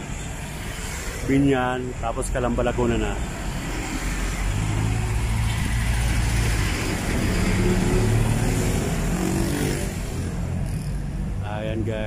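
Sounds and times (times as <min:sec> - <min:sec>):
hum of cars and tyre noise: 0:00.0 - 0:12.0
vehicle engine speeding up: 0:03.7 - 0:11.1.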